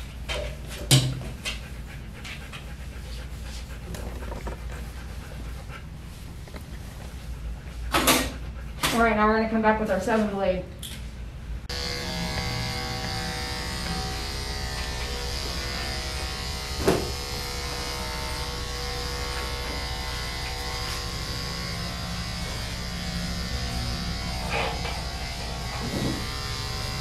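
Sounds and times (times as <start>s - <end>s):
electric dog clippers running: 11.7s - 27.0s.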